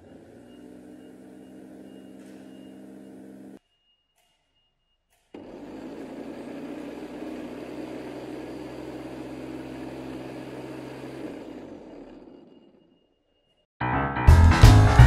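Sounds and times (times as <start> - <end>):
electric lawn scarifier motor humming: 0.0 - 3.6, 5.3 - 13.0.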